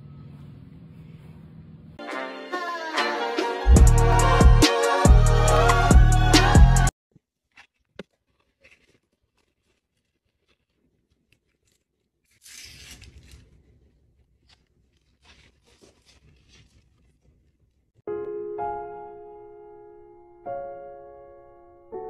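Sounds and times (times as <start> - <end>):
paperboard carton crinkling: 7.2 - 18.0
paperboard rustle: 7.2 - 18.0.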